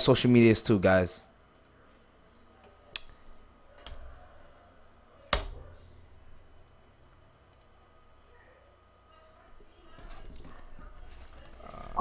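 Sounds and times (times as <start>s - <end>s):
faint room noise: 0.0s - 12.0s.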